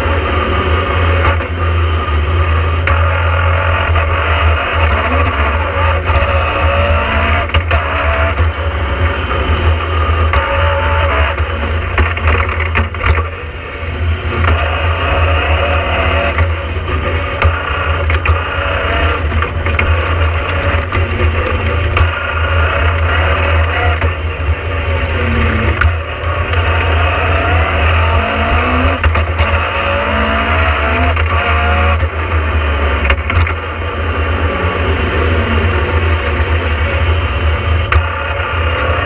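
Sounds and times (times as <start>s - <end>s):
rally car engine accelerating: 0.0s - 39.0s
road and tyre noise: 0.0s - 39.0s
knocks and rattles: 2.8s - 13.5s, 14.2s - 24.4s, 25.0s - 33.8s.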